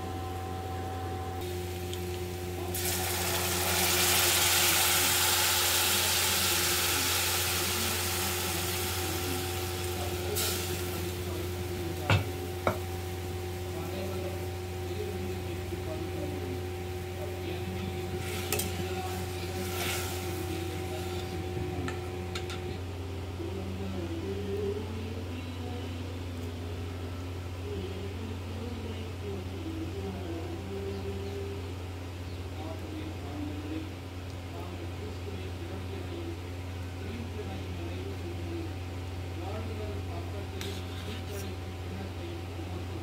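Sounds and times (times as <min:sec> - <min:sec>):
steady low hum: 0:00.0 - 0:43.0
liquid sizzling in hot oil: 0:01.4 - 0:13.3, 0:18.1 - 0:21.3.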